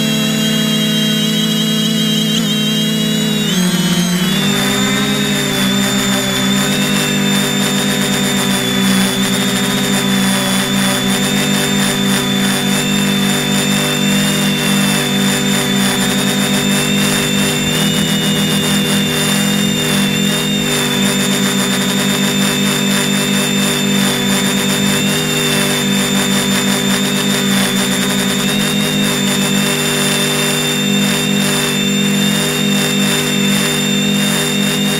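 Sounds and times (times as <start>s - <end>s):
drone motors humming and whining: 0.0s - 34.9s.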